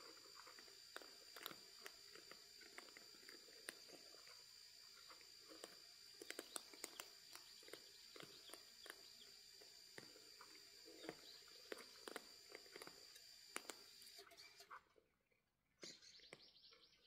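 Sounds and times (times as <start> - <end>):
cats chewing clicks: 0.0 - 4.4, 5.0 - 14.1.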